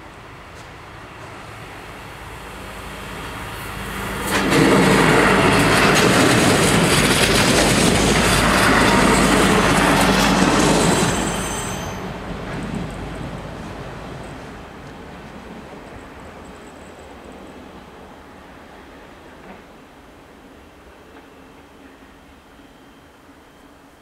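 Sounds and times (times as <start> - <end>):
train engine hum: 0.0 - 24.0
train wheels clicking over rail joints: 3.6 - 16.6
high wheel squeal: 8.4 - 12.2.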